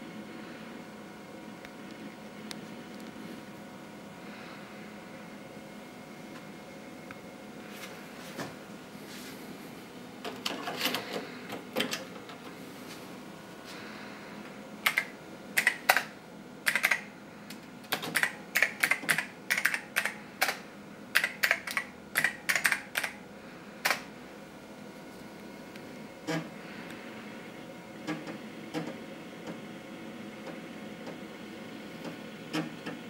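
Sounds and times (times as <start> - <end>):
keyboard typing clicks: 14.8 - 17.1, 17.9 - 20.6, 21.2 - 23.2.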